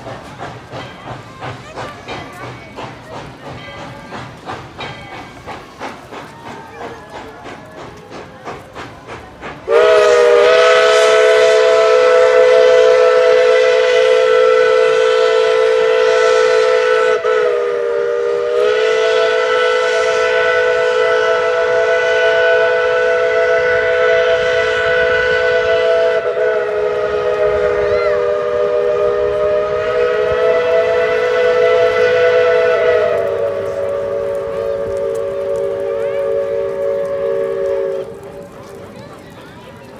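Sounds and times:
steam locomotive whistle chord: 0:09.7 - 0:38.3.

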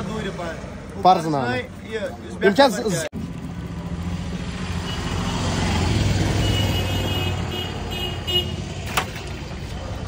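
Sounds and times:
vehicle engine rumble passing: 0:03.2 - 0:10.0.

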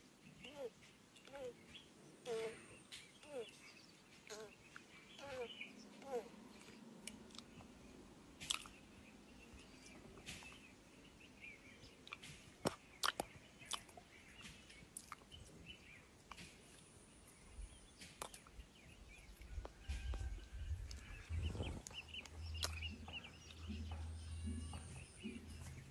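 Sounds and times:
low rumble: 0:20.3 - 0:25.9.

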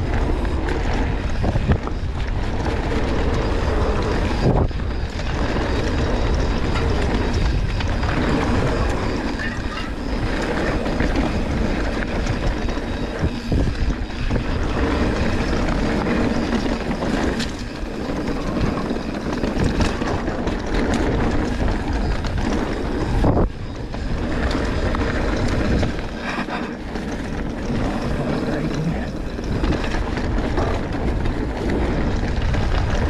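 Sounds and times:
bike chain and frame rattling: 0:00.0 - 0:33.0
bike tyres rumbling on dirt: 0:00.0 - 0:33.0
wind rushing over microphone: 0:00.0 - 0:33.0.

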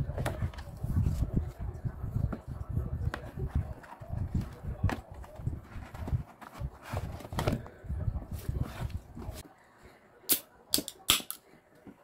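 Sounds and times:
paper box rustling: 0:03.2 - 0:09.4.

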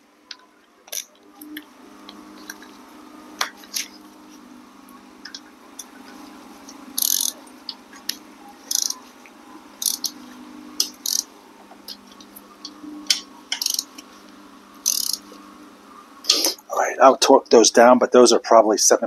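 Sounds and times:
low hum: 0:00.0 - 0:17.2
ratchet wrench clicking: 0:07.0 - 0:07.4, 0:08.7 - 0:09.0, 0:09.8 - 0:10.2, 0:10.8 - 0:11.3, 0:13.1 - 0:14.0, 0:14.8 - 0:15.2.

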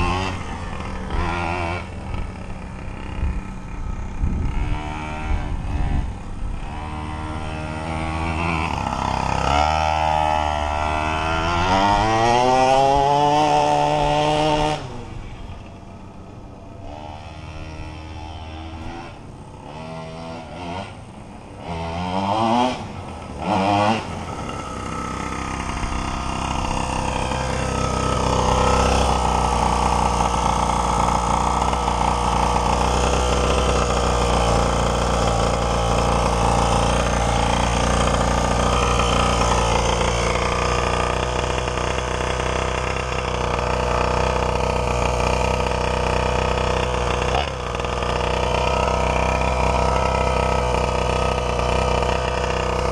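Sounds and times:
toy truck two-stroke engine revving: 0:00.0 - 0:52.9.

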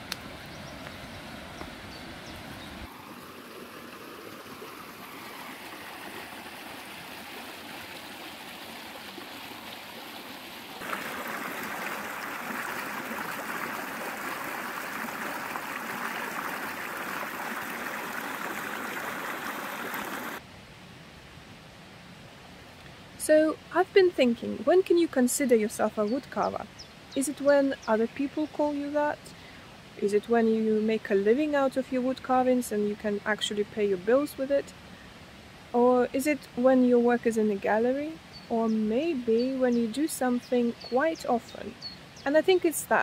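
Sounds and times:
stream rushing over rocks: 0:01.5 - 0:20.4
water tumbling down cascade: 0:02.9 - 0:20.4.

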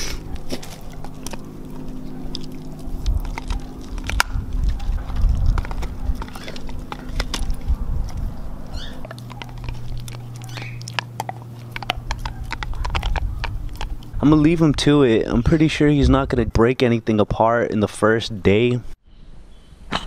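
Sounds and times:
dog gnawing on antler: 0:00.0 - 0:15.0.

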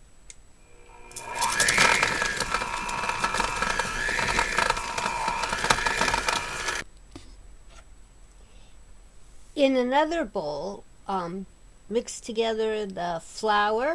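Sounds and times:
electric hand mixer running: 0:00.6 - 0:06.8.

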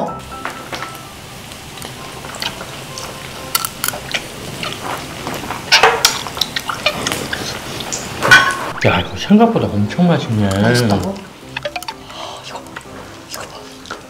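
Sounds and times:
chewing: 0:01.8 - 0:08.1, 0:10.5 - 0:14.0
spoons and tableware clinking: 0:03.4 - 0:07.2, 0:08.0 - 0:08.8, 0:10.4 - 0:12.9.

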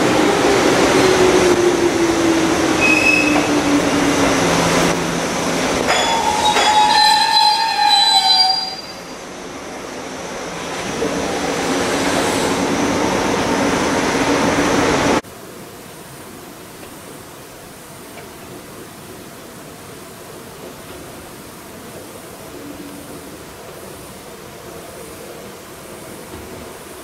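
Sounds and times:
standing train hum: 0:00.0 - 0:27.0
high brake squeal: 0:02.8 - 0:03.6, 0:06.0 - 0:09.2.

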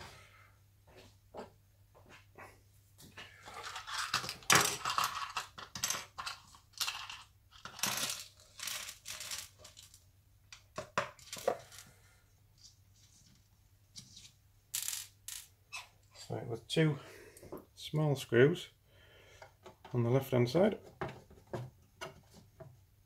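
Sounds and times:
screws spilling on wooden worktop: 0:03.4 - 0:10.0
metal screws rattling in plastic pot: 0:03.5 - 0:10.0.

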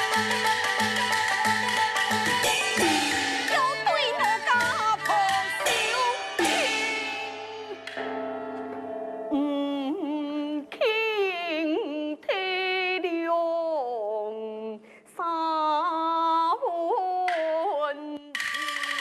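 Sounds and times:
instrumental accompaniment: 0:00.0 - 0:10.7
woman singing opera: 0:03.5 - 0:07.2, 0:09.3 - 0:19.0.

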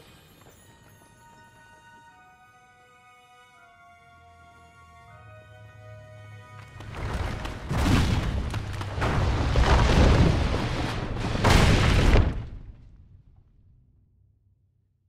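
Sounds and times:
boulders falling and crashing: 0:06.8 - 0:13.0.

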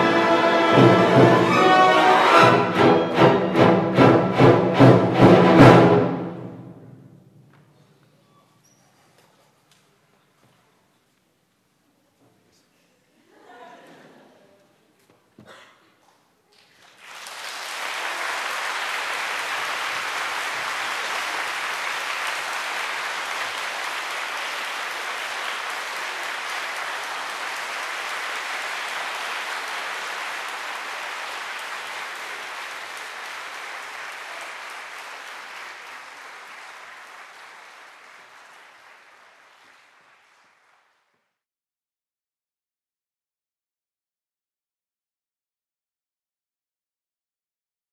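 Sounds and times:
audience applauding: 0:00.0 - 0:06.4, 0:16.6 - 0:41.4.

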